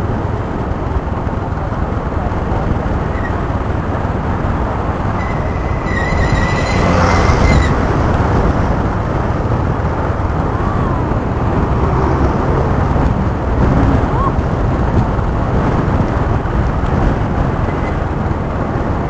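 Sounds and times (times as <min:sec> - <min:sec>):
scooter engine and road noise: 0:00.0 - 0:19.0
wind rush: 0:00.0 - 0:19.0
high-pitched squeal: 0:05.0 - 0:08.3.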